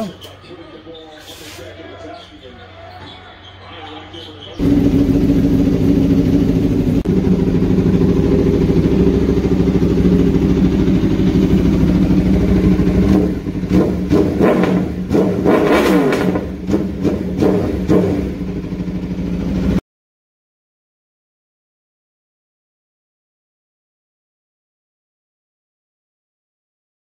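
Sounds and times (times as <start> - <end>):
engine throttle blips: 3.2 - 19.8
motorcycle engine idling: 4.1 - 19.8.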